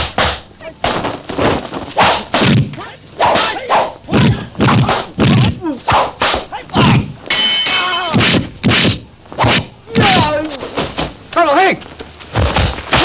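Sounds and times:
punch impacts: 0:02.0 - 0:07.1, 0:08.1 - 0:11.2, 0:12.4 - 0:13.0.

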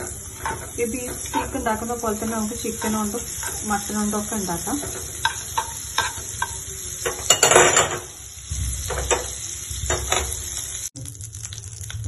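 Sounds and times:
utensil scraping pan: 0:00.0 - 0:08.0
utensil tapping on pan: 0:00.0 - 0:08.1
butter sizzling in frying pan: 0:00.0 - 0:12.0.

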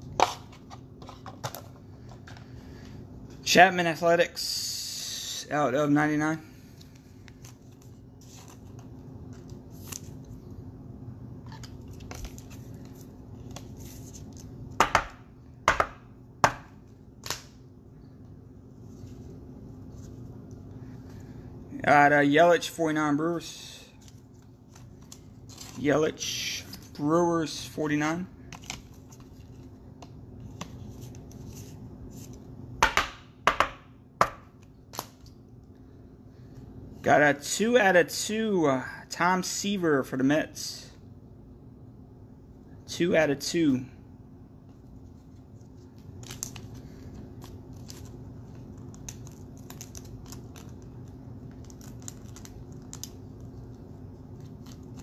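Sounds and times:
cards being handled: 0:06.6 - 0:10.6, 0:11.4 - 0:15.2, 0:23.9 - 0:27.0, 0:28.5 - 0:33.2, 0:44.7 - 0:55.0.

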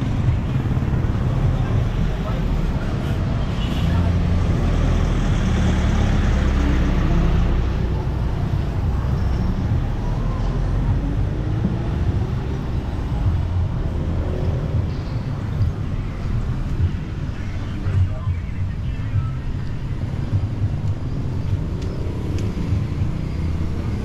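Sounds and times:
distant traffic rumble: 0:00.0 - 0:24.0
vehicle engines humming: 0:00.0 - 0:24.0.

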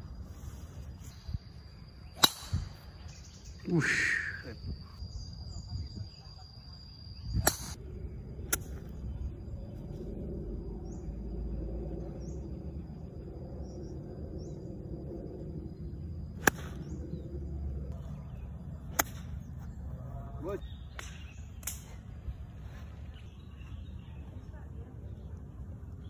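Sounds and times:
birds chirping: 0:00.0 - 0:26.0
insect high drone: 0:00.0 - 0:26.0
low outdoor rumble: 0:00.0 - 0:26.0
golf club striking ball: 0:02.2 - 0:02.7, 0:16.4 - 0:17.0, 0:18.9 - 0:19.3.

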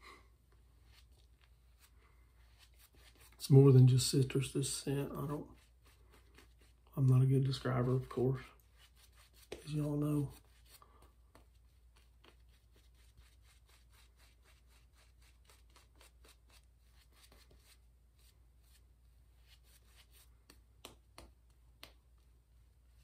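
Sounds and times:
shaving brush swishing lather: 0:00.8 - 0:10.8.

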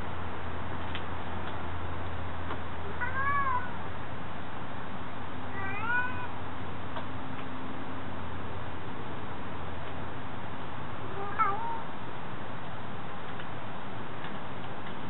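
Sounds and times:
steady low hum: 0:00.0 - 0:15.0
cat meowing: 0:02.9 - 0:03.8, 0:05.5 - 0:06.4, 0:11.1 - 0:11.9.

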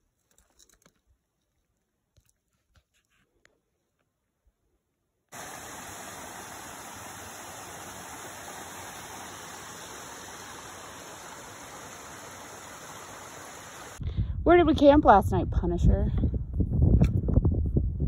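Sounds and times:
creek running over rocks: 0:05.3 - 0:14.0.

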